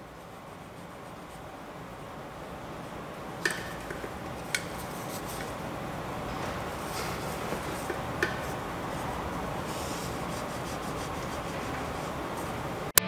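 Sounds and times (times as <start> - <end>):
cloth rag scrubbing plastic: 0.0 - 12.9.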